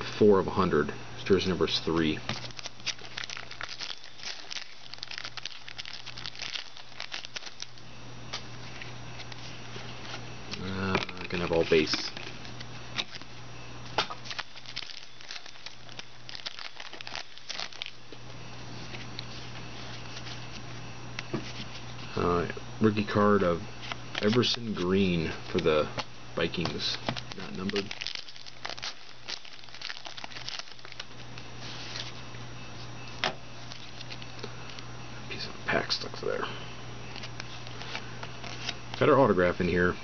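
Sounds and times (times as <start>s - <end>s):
cards being handled: 1.8s - 13.3s, 13.9s - 18.0s, 23.8s - 32.2s, 37.1s - 39.1s
foil wrapper crinkling: 1.8s - 13.3s, 13.9s - 18.2s, 23.8s - 32.2s, 33.0s - 34.8s, 37.1s - 39.1s.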